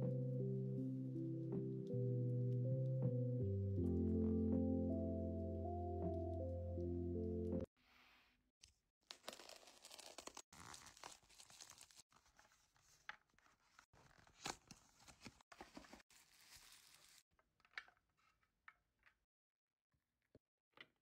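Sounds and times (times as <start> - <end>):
plastic tearing and crinkling: 9.1 - 12.0.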